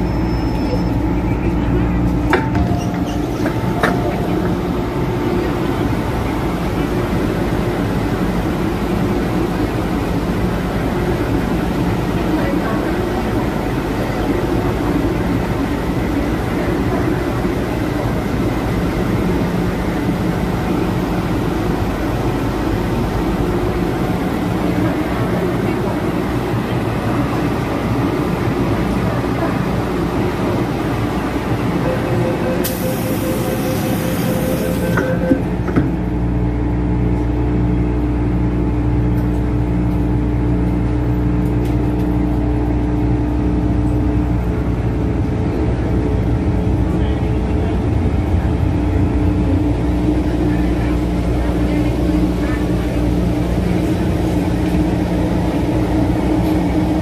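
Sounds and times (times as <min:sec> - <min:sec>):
train electrical equipment hum: 0:00.0 - 0:57.0
steady low tones: 0:00.9 - 0:27.0
held tone: 0:31.8 - 0:35.6.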